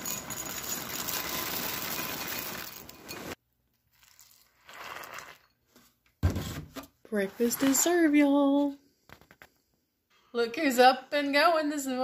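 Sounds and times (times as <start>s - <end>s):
cereal pouring into glass bowl: 0.0s - 5.6s
milk pouring: 3.8s - 5.6s.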